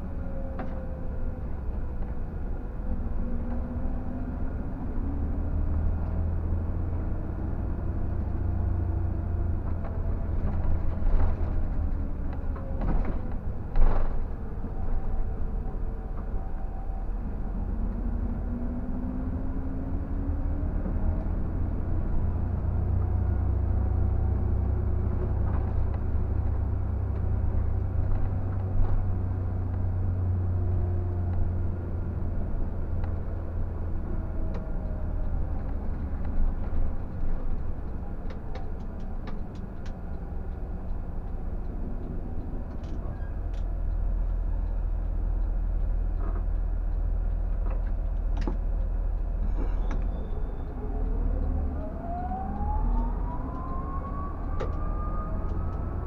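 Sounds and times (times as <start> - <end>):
diesel engine deep rumble: 0.0 - 56.0
road noise: 0.0 - 56.0
light ticks and rattles: 30.6 - 53.8
rising whine: 50.0 - 56.0.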